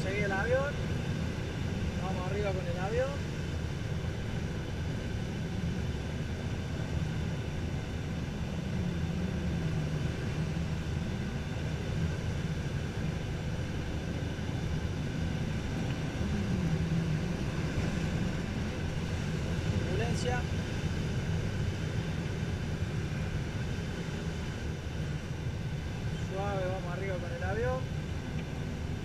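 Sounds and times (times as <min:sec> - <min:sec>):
air rushing past cockpit: 0:00.0 - 0:29.0
propeller engine drone: 0:00.0 - 0:29.0.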